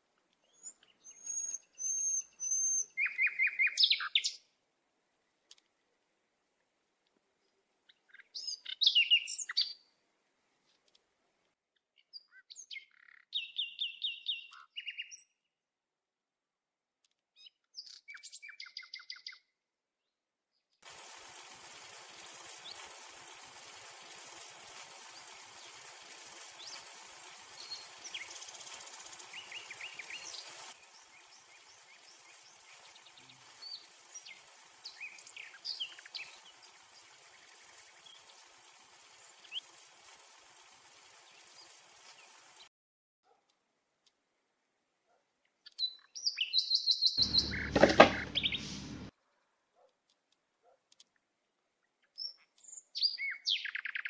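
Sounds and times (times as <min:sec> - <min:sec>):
birds chirping and trilling: 0:00.4 - 0:04.4, 0:07.9 - 0:09.9, 0:12.0 - 0:15.3, 0:17.4 - 0:19.4, 0:26.6 - 0:39.9, 0:45.6 - 0:49.0, 0:52.0 - 0:54.0
steady hiss: 0:20.8 - 0:42.7, 0:47.2 - 0:49.1.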